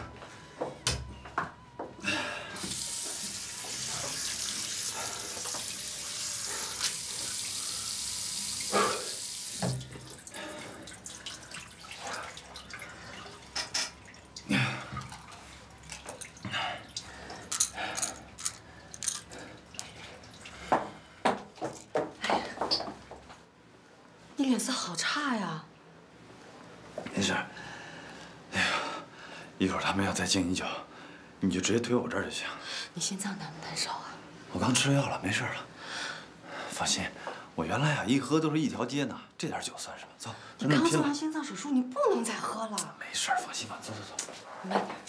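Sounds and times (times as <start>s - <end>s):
tap running into washbasin: 2.6s - 10.2s
water splashes and drips: 2.6s - 21.8s.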